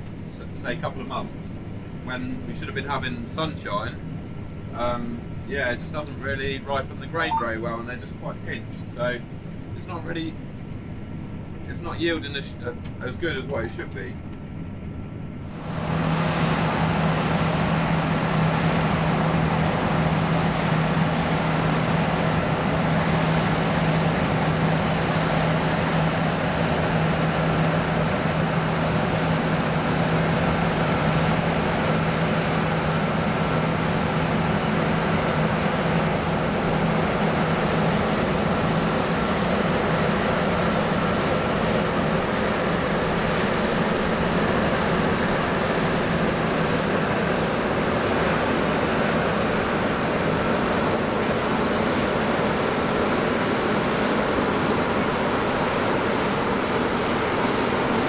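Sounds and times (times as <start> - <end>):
combine harvester droning: 14.6 - 58.0.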